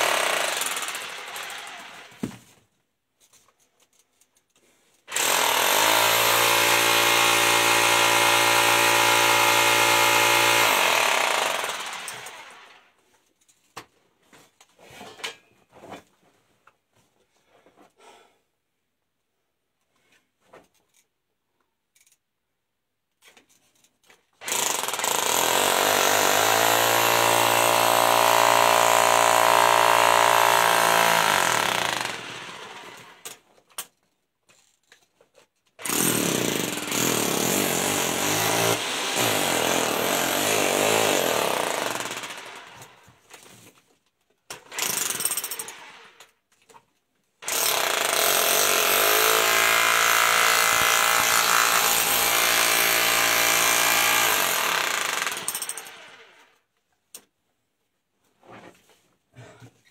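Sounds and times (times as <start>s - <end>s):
jackhammer breaking rock: 0.0s - 2.4s, 5.1s - 12.7s, 24.4s - 33.1s, 35.8s - 43.0s, 44.6s - 46.0s, 47.4s - 56.1s.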